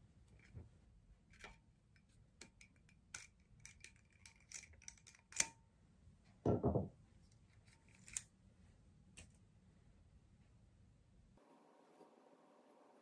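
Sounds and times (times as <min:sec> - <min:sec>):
pliers twisting wire clicks: 0:02.4 - 0:05.5.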